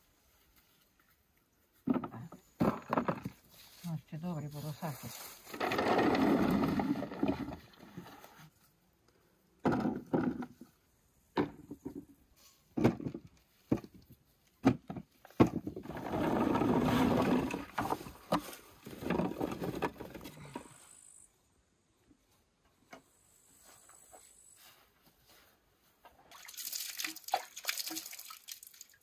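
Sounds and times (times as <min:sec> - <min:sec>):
rustling of things handled: 0:00.0 - 0:08.8, 0:12.3 - 0:20.8, 0:23.6 - 0:26.3.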